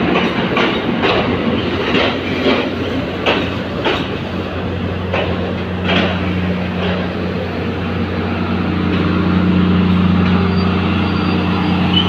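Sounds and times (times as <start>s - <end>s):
diesel train engine humming: 0.0s - 12.0s.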